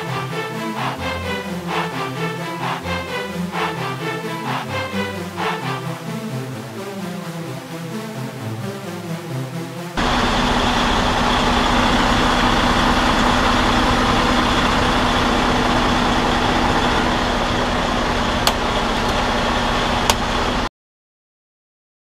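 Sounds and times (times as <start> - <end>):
diesel truck engine idling: 10.0 - 20.7.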